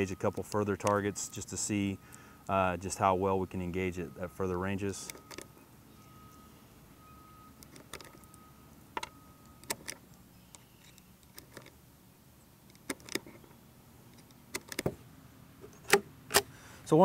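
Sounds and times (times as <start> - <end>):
rounds clicking into magazine: 0.3 - 1.2, 9.0 - 11.8, 12.6 - 13.5, 14.1 - 14.9.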